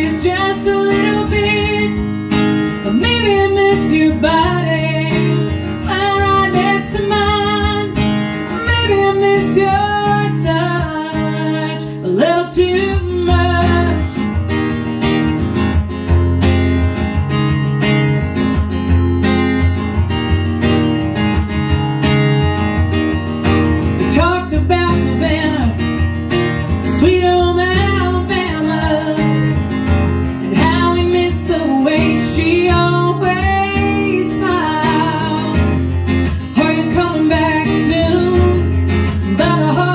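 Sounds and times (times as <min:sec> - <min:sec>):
woman singing: 0:00.0 - 0:14.3, 0:24.0 - 0:26.0, 0:26.7 - 0:29.7, 0:30.3 - 0:39.9
strummed acoustic guitar: 0:00.0 - 0:39.9.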